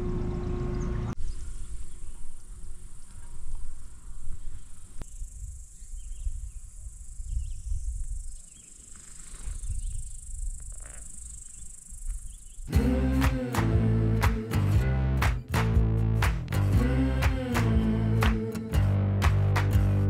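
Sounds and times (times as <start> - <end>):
wind rumble on microphone: 1.2 - 8.4, 9.4 - 10.7.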